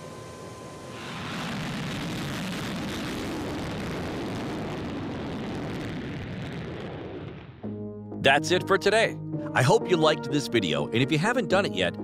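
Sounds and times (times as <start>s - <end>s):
jet engines in afterburner: 0.0s - 7.7s.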